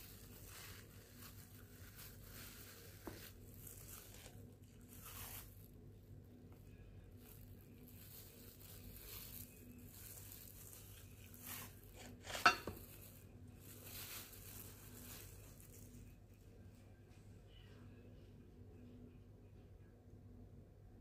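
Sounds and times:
soft rustles: 0.0s - 5.7s, 7.1s - 17.3s
dishes clinking: 12.2s - 13.0s.

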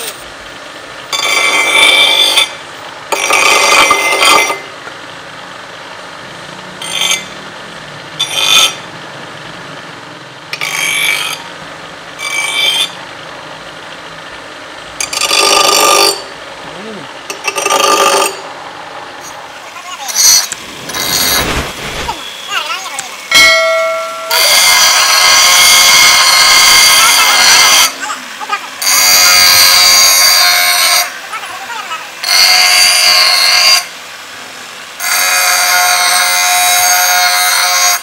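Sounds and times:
blade grinding screech: 1.1s - 4.7s, 6.8s - 7.4s, 8.2s - 8.8s, 10.6s - 11.4s, 12.2s - 13.0s, 15.0s - 16.3s, 17.3s - 18.5s, 20.1s - 22.6s, 24.3s - 28.0s, 32.2s - 33.9s.

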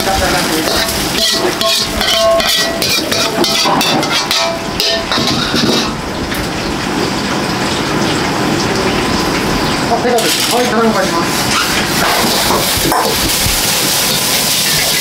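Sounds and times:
metal clattering and knocking: 1.2s - 6.0s
loud steady hiss: 8.4s - 15.0s.

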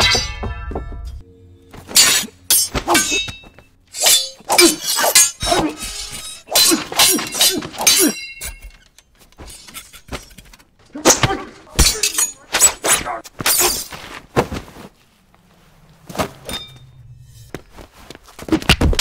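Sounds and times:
steel blades clashing: 0.0s - 0.6s, 1.9s - 13.9s, 16.4s - 17.1s.

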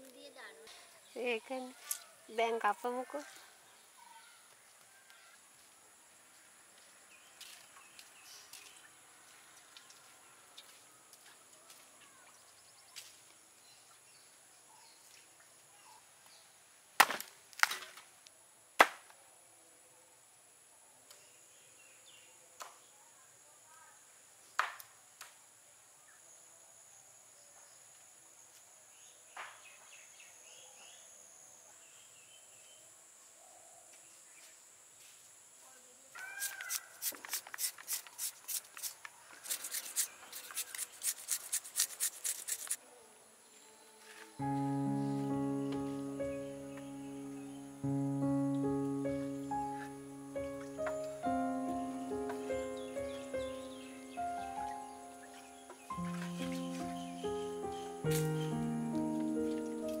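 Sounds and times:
hand grater shredding papaya: 36.4s - 42.8s.

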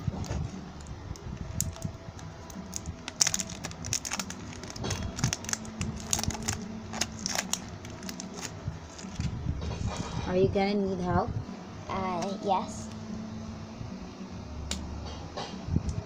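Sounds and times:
plastic wrap crinkling and tearing: 1.4s - 9.3s.

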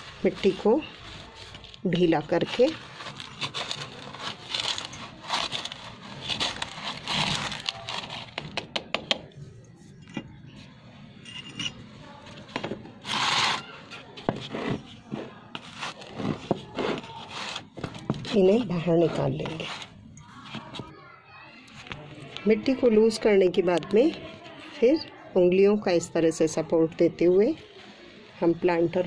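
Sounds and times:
hand tool scraping soil: 0.0s - 8.4s, 13.0s - 19.9s.

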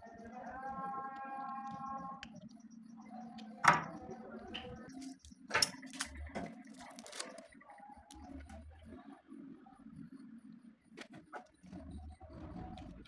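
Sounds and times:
plastic parts clicking: 4.6s - 7.5s.

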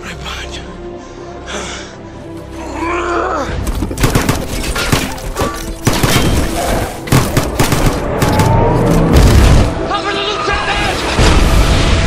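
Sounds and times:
rapid rifle fire: 4.0s - 5.2s, 5.8s - 8.6s.

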